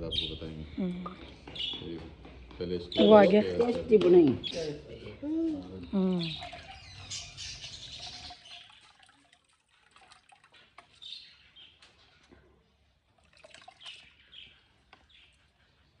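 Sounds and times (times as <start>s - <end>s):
water sloshing and trickling: 5.5s - 16.0s.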